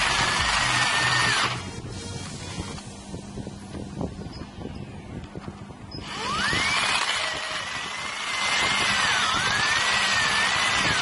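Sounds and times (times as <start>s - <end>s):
electric drill boring into steel: 0.0s - 1.8s, 6.0s - 11.0s.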